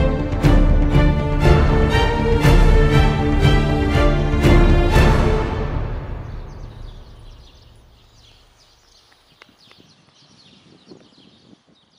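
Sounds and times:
background music: 0.0s - 8.2s
small birds chirping: 6.0s - 11.9s.

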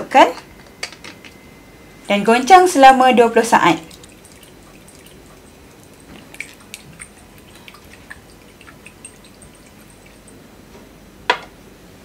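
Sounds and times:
liquid sloshing in glass cell: 3.3s - 10.5s.

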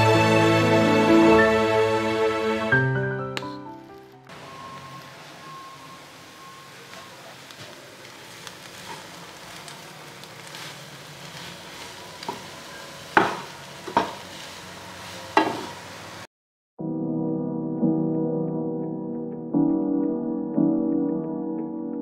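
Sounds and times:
noodles sizzling in a frying pan: 3.4s - 16.3s
spatula stirring and scraping: 7.4s - 15.8s
spatula knocking on pan: 13.2s - 14.2s, 15.4s - 15.7s.

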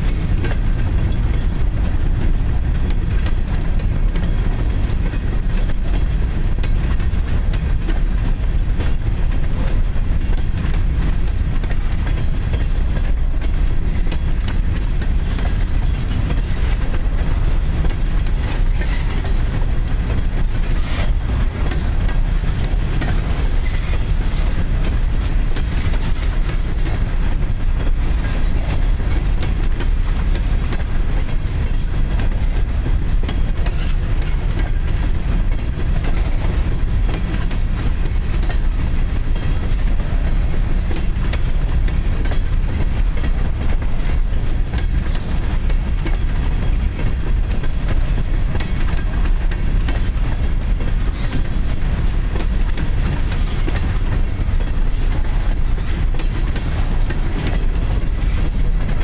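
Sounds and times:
steel wheels rumbling on rail: 0.0s - 59.0s
wheels clicking over rail joints: 0.0s - 59.0s.

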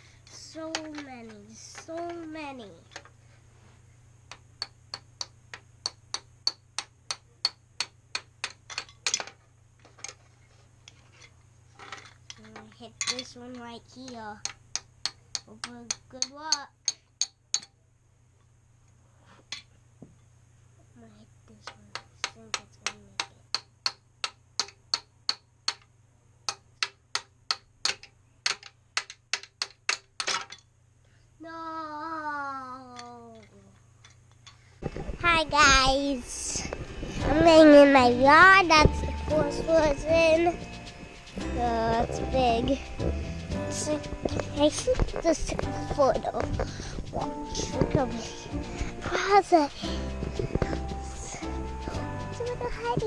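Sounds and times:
plastic mallet tapping plastic blocks: 0.7s - 1.1s, 4.3s - 9.4s, 11.9s - 17.7s, 21.6s - 25.9s, 26.5s - 30.6s
plastic mallet tapping ice blocks: 21.6s - 25.9s, 26.5s - 30.4s
child saying no: 31.4s - 33.7s, 47.1s - 49.8s.

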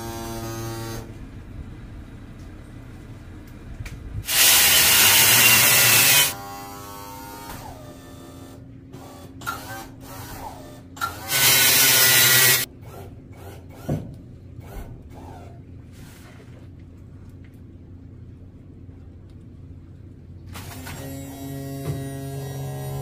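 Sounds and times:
steady low hum: 0.0s - 23.0s
hissing spray bursts: 4.3s - 6.4s.

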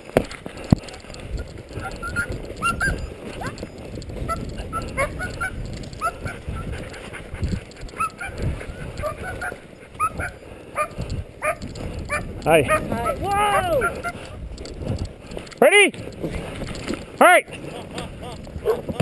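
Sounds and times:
low rumble on snow: 0.0s - 19.0s
sled dogs yelping: 1.7s - 7.2s, 7.8s - 14.4s, 18.5s - 19.0s.

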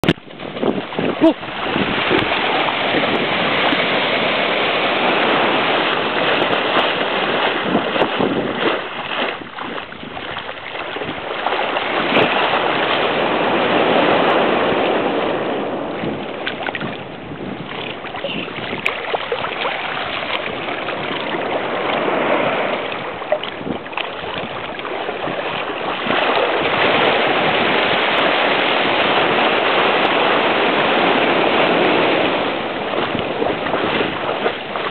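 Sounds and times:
ocean surf breaking: 0.0s - 34.9s
wind on microphone: 0.0s - 34.9s.

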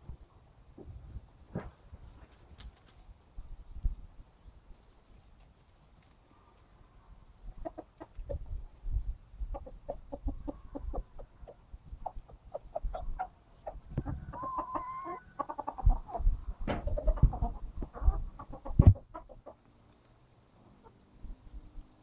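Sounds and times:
chickens clucking: 5.2s - 21.2s
loud thumps: 16.6s - 17.0s.

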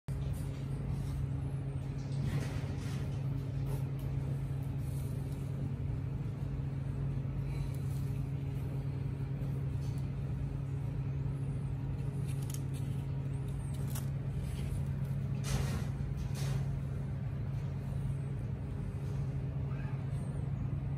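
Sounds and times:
steady low hum: 0.1s - 20.9s.

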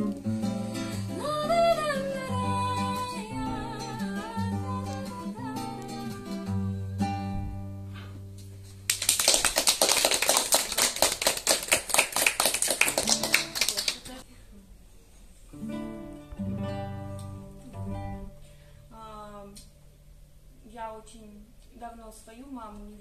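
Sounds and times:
song with guitar and singing: 0.0s - 7.6s
audience applause: 8.9s - 14.1s.

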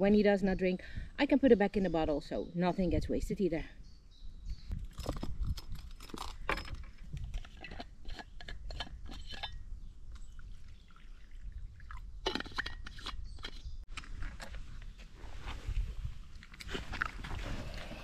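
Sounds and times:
water sloshing and dripping: 10.1s - 12.8s.

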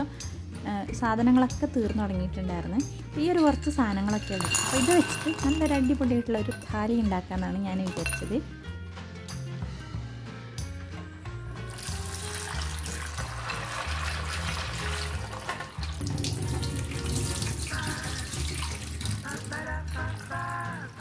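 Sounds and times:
background music: 0.0s - 21.0s
tap running into sink: 11.8s - 19.1s.

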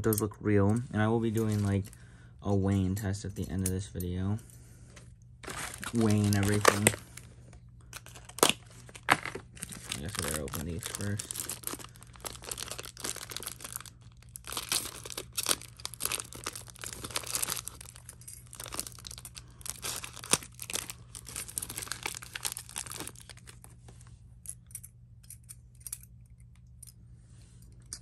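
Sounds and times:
plastic bags crinkling and tearing: 5.4s - 23.8s.

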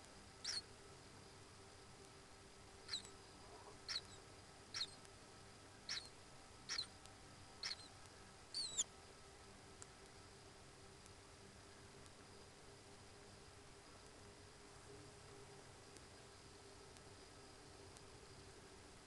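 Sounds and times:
faint steady hum: 0.0s - 19.0s
kingfisher shrill calls: 0.4s - 0.6s, 3.9s - 4.2s, 4.8s - 5.0s, 5.9s - 6.1s, 6.7s - 6.9s, 7.6s - 7.9s, 8.6s - 8.9s.

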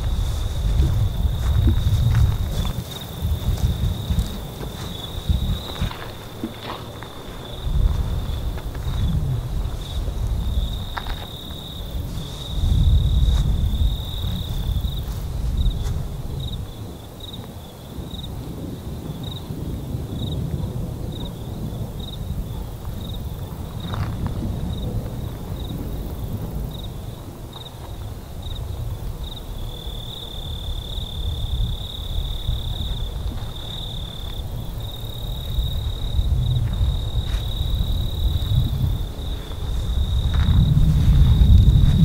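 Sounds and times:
low rumble: 0.0s - 11.2s, 31.6s - 42.0s
crickets chirping: 0.0s - 42.0s.

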